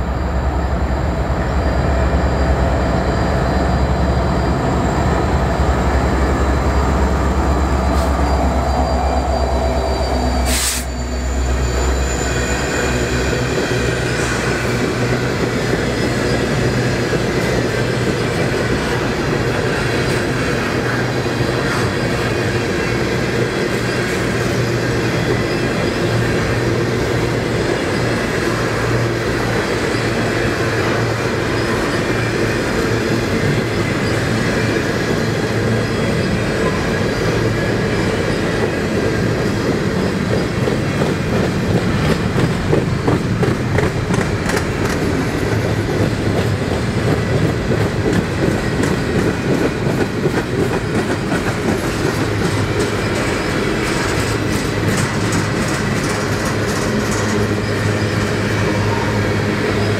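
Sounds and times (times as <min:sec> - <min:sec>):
freight train rumbling: 0:00.0 - 0:59.9
wheels clacking over rail joints: 0:13.4 - 0:59.9.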